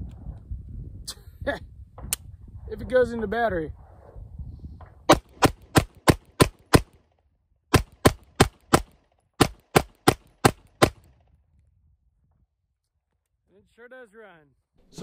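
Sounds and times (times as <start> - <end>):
pistol shots: 5.1 - 7.0, 7.7 - 11.1.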